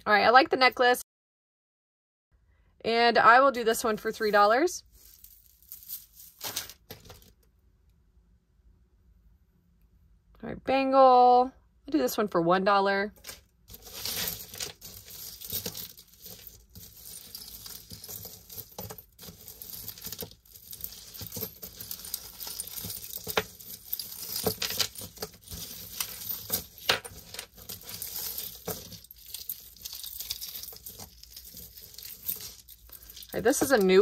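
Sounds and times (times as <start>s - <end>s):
metal chains jingling and clinking: 4.3s - 6.6s, 13.2s - 34.0s.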